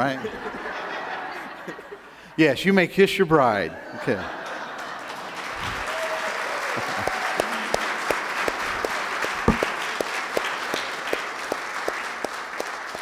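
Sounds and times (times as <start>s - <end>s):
crowd applauding: 4.8s - 13.0s
person clapping close by: 6.8s - 13.0s.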